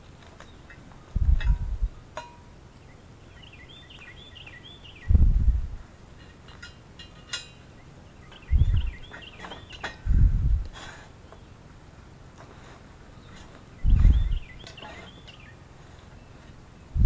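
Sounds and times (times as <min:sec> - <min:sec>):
wind gusts on microphone: 0:01.1 - 0:02.0, 0:05.0 - 0:05.9, 0:08.4 - 0:09.1, 0:10.0 - 0:10.8, 0:13.8 - 0:14.5
bird chirping: 0:02.6 - 0:05.6, 0:07.3 - 0:10.1, 0:13.1 - 0:17.0.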